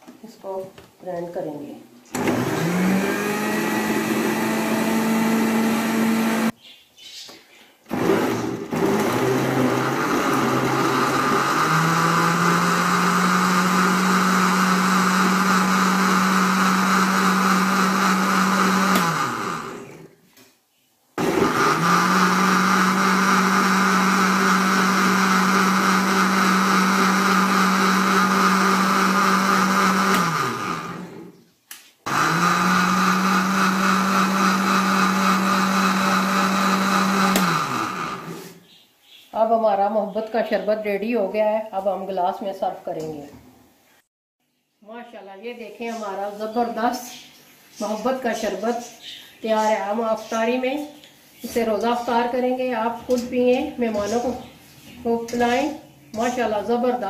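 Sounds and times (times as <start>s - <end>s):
electric blender running: 2.2s - 6.5s, 7.9s - 20.1s, 21.2s - 31.3s, 32.1s - 38.5s.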